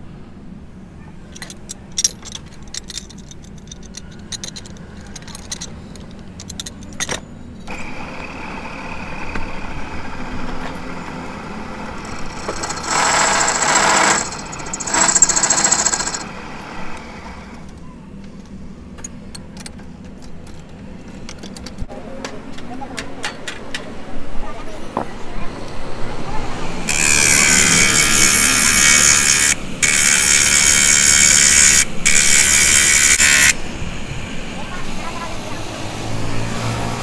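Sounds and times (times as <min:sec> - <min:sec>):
machine whirring: 0:07.6 - 0:17.8, 0:26.8 - 0:37.0.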